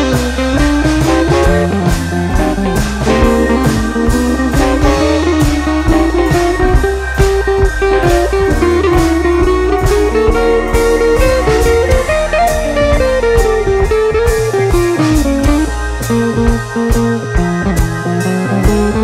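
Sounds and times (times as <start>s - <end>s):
blues electric guitar: 0.0s - 19.0s
steady drum beat: 0.0s - 19.0s.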